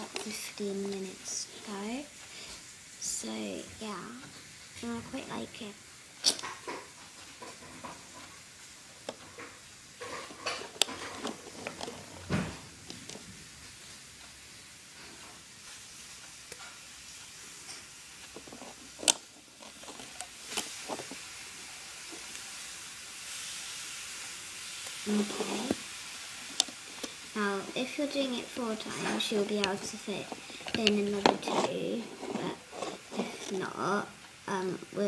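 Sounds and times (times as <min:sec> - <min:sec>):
plastic clicks and scraping: 0:09.1 - 0:12.2, 0:18.2 - 0:21.2, 0:28.7 - 0:33.6.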